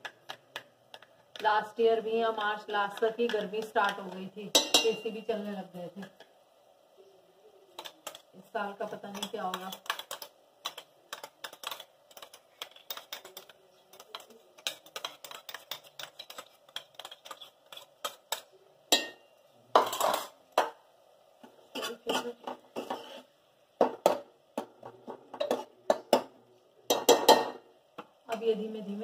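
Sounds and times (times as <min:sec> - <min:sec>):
spoon stirring in cooker: 0:00.0 - 0:06.4, 0:07.7 - 0:20.8, 0:21.4 - 0:28.5
metal spoon clinking on steel bowls: 0:03.0 - 0:05.2, 0:08.9 - 0:19.2, 0:26.9 - 0:27.6.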